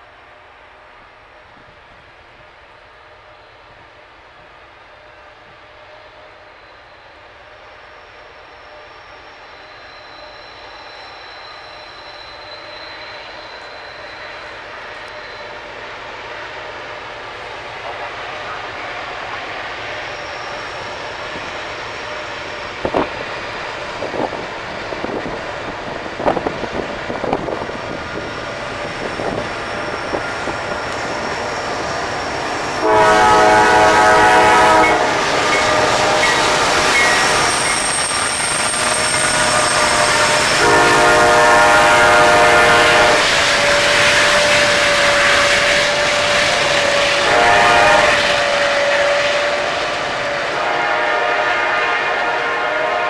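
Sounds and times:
train rumble: 12.3s - 53.0s
train air horn blasts: 32.7s - 38.0s, 38.6s - 53.0s.

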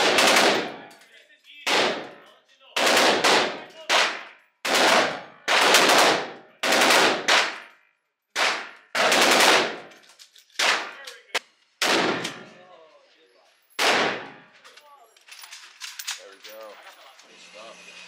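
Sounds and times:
loud gunshots with echo: 0.0s - 0.9s, 1.6s - 2.2s, 2.8s - 7.7s, 8.4s - 9.9s, 11.8s - 12.5s, 13.8s - 14.5s.

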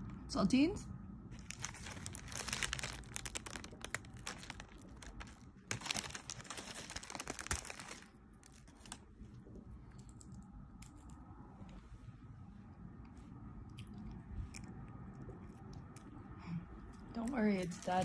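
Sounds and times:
plastic sleeve crinkling: 1.3s - 9.1s, 17.6s - 18.0s.

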